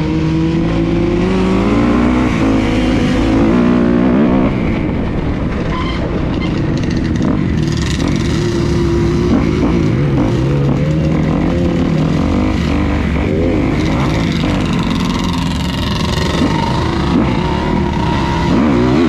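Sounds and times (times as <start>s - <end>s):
off-road engines revving: 0.0s - 5.4s, 6.2s - 19.0s.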